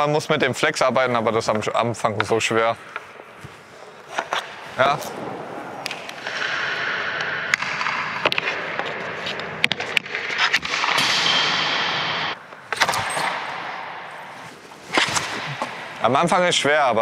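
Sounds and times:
hockey stick striking puck: 2.1 - 16.1
skate scraping across ice: 14.2 - 16.0.

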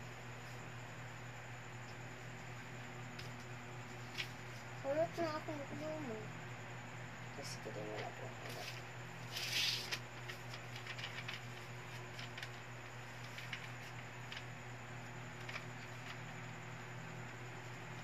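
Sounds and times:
steady low hum: 0.0 - 18.0
paper rustling: 4.1 - 4.4, 8.5 - 14.5.

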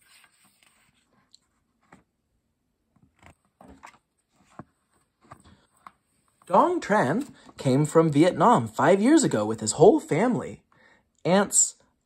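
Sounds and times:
book page turning: 0.0 - 2.1, 3.0 - 6.4
paper rustling: 0.0 - 2.1.

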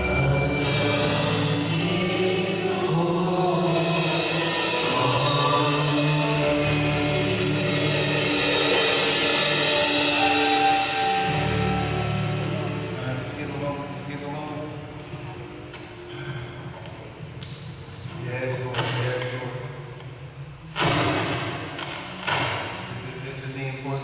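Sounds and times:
group singing gospel: 0.0 - 12.4
sustained instrumental backing: 0.0 - 16.3.

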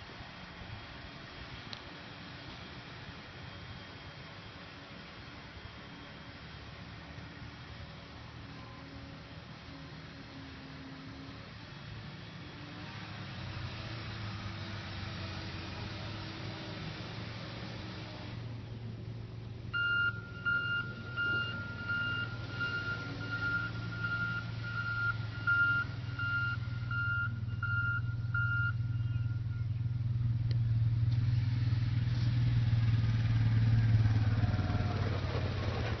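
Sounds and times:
diesel engine running: 0.0 - 36.0
back-up alarm beeping: 19.8 - 29.7.

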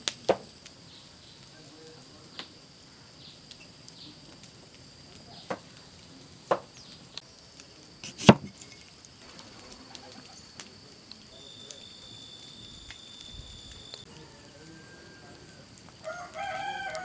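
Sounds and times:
knife chopping on wooden board: 8.0 - 8.5.

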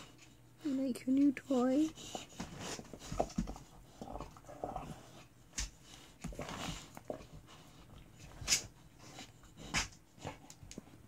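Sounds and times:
dog chewing rubber toy: 1.8 - 10.8.

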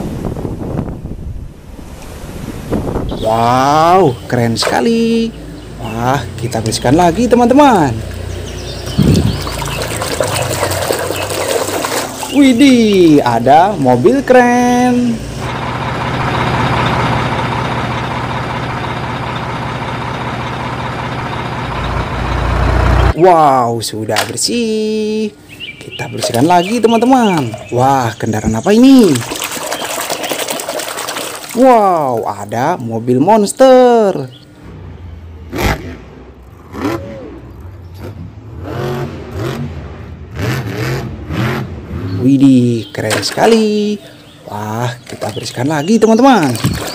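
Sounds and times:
diesel engine throbbing: 3.3 - 23.3.

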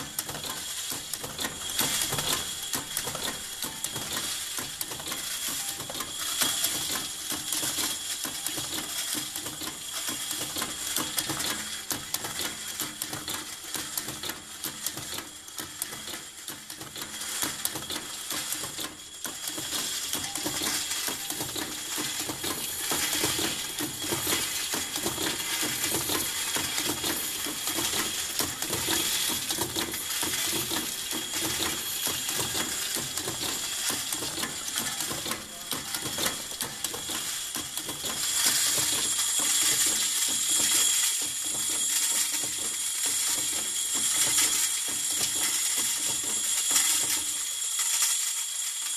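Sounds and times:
metal parts clattering: 17.2 - 48.9.

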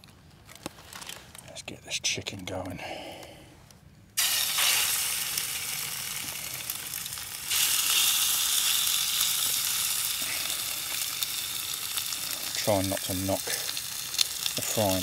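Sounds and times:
chicken sizzling in hot oil: 4.2 - 15.0.

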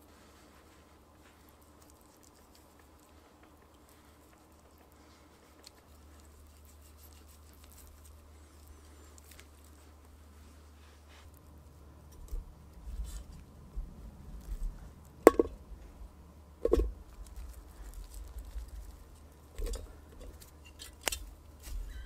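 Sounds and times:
soft handling rustle: 0.0 - 16.0, 16.7 - 22.0
food knocking into metal pot: 15.3 - 15.6, 16.6 - 16.9.

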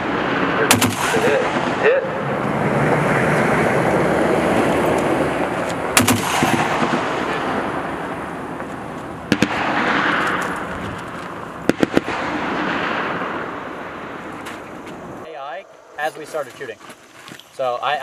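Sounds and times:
rolling gunfire echo: 0.0 - 2.3, 5.9 - 14.4.

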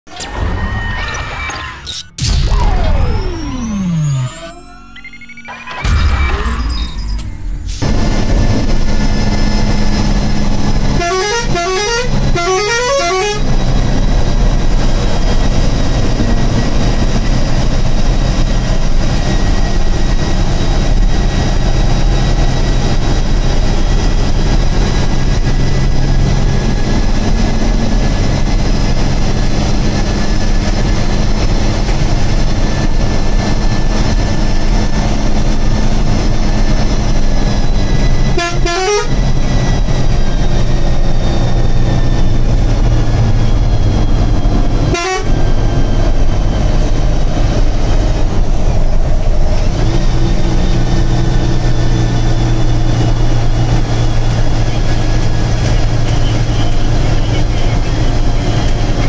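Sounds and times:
bus diesel engine running: 1.4 - 59.0
air horn rising notes: 7.8 - 15.6, 35.3 - 46.9.

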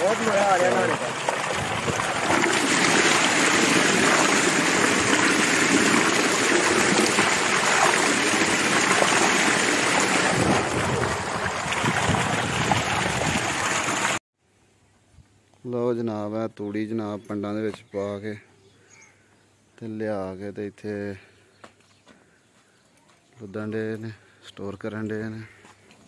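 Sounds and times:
water gushing and splashing: 0.0 - 14.2.

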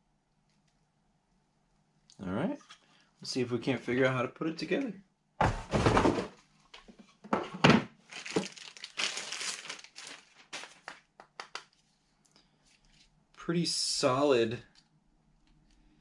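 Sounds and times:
plastic packaging crinkling: 8.0 - 11.1.

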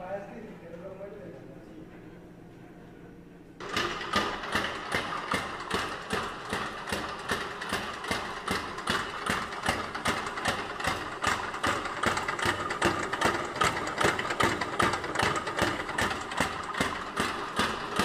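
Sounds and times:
vibrating machine knocking and rattling: 3.6 - 18.0.

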